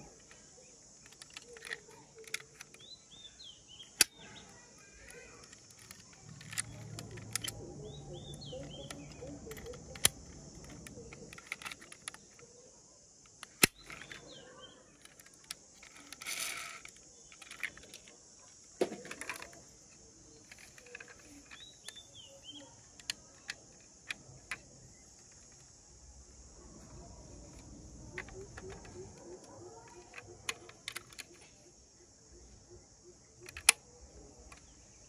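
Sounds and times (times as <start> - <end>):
clicks and taps of toy doors: 0.0 - 2.9, 3.9 - 7.6, 8.3 - 12.6, 15.0 - 25.8, 27.4 - 31.6, 33.4 - 34.8
bird chirps: 0.0 - 12.8, 13.7 - 16.1, 20.2 - 23.7
high insect drone: 0.0 - 35.0.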